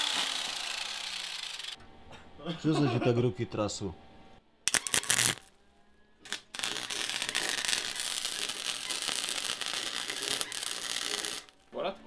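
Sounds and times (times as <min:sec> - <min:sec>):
arc welder crackling: 0:00.0 - 0:01.8, 0:04.7 - 0:05.6, 0:06.2 - 0:11.8.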